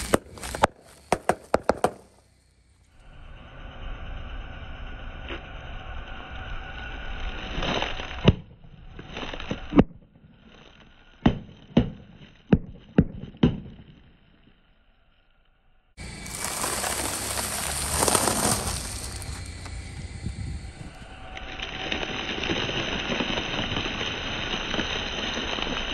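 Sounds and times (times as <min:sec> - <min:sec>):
tyre crackling over plastic: 0:16.0 - 0:19.8.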